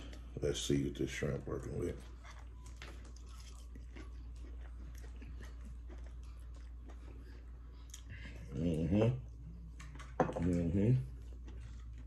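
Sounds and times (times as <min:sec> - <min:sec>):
person chewing crisp food: 0:01.6 - 0:08.8, 0:11.1 - 0:12.0.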